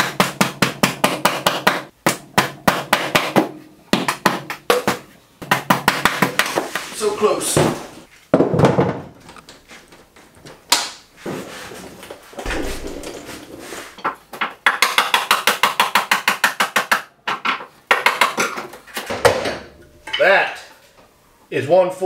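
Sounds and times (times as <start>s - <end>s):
knocks and rubbing: 12.4s - 14.6s.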